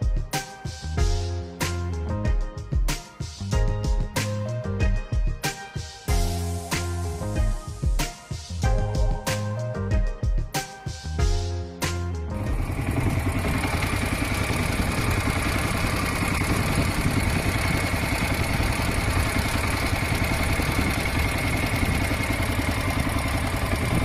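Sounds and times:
boat engine running: 12.4s - 24.0s.

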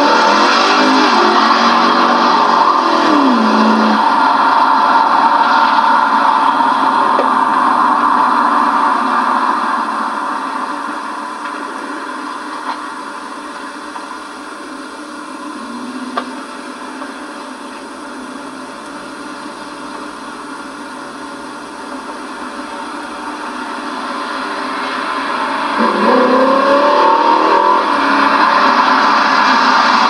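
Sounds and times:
distant car engine running: 0.0s - 30.0s
steady hiss: 0.3s - 25.8s.

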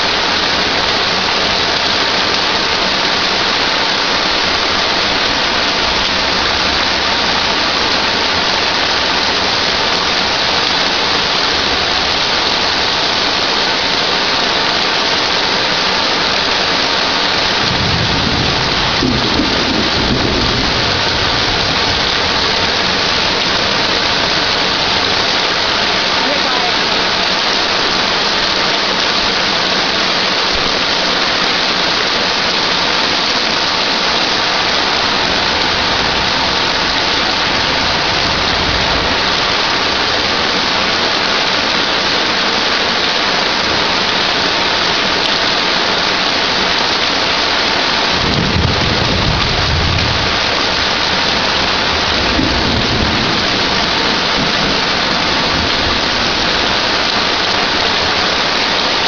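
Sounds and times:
heavy rain pouring: 0.0s - 59.0s
thunder rumbling: 16.4s - 26.1s, 33.9s - 41.0s, 48.0s - 59.0s.

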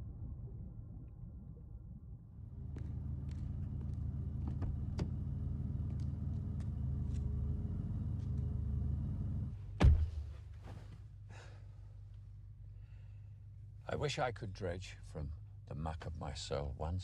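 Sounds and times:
car engine idling: 2.5s - 9.8s
car door shutting: 9.8s - 10.2s.

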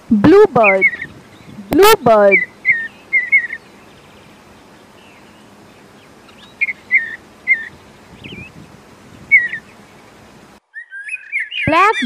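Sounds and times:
faint outdoor hiss: 0.0s - 12.0s
bird call notes: 0.5s - 12.0s.

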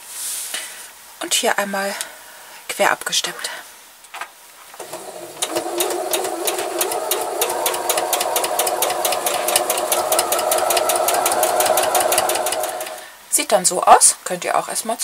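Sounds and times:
sewing machine stitching: 4.8s - 13.1s.

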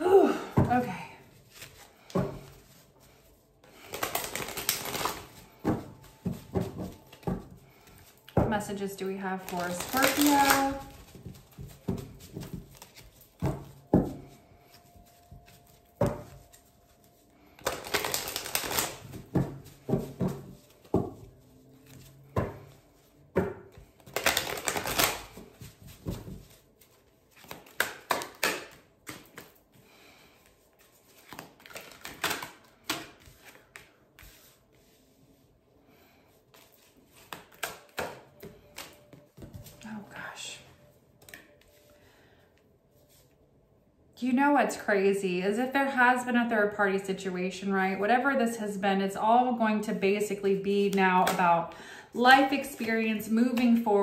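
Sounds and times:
cards being shuffled: 1.4s - 8.4s, 9.4s - 22.5s, 23.7s - 29.7s, 30.4s - 35.0s, 36.5s - 39.8s.

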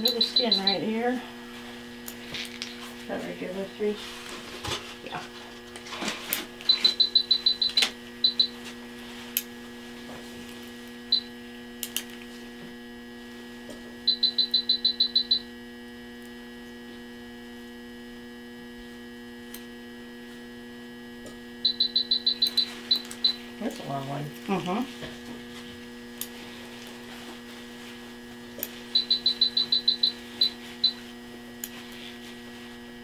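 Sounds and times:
rapid electronic alarm beeping: 0.0s - 1.2s, 6.6s - 8.6s, 14.1s - 15.4s, 21.6s - 23.5s, 28.9s - 31.0s
electrical hum: 0.0s - 33.0s.

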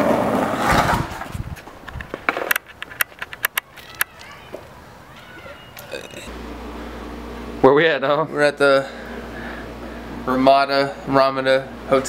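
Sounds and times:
skateboard wheels rolling on asphalt: 0.0s - 4.8s
sharp clicks: 1.9s - 4.4s.

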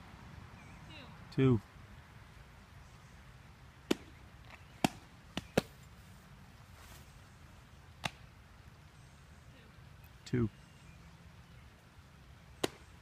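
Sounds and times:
softball smacking into gloves: 3.8s - 4.2s, 4.8s - 5.8s, 8.0s - 8.3s, 12.6s - 12.9s.

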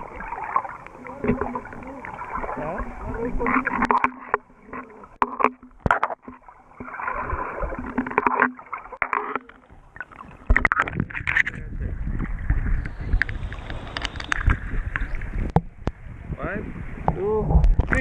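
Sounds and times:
splashes: 0.0s - 11.6s
water sloshing and gurgling: 0.0s - 18.0s
sharp clicks and knocks: 3.6s - 6.9s.

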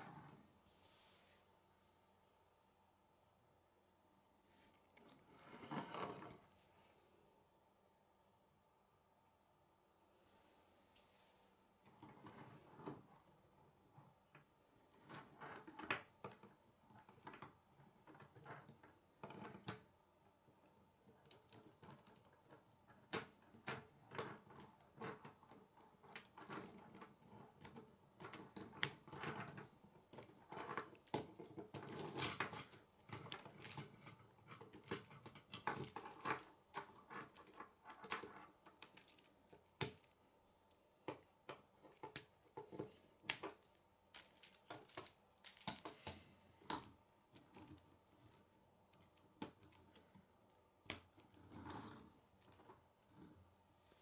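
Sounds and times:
plastic pieces clicking and snapping: 26.0s - 40.2s, 41.0s - 50.1s
handling rustle: 41.9s - 46.3s.

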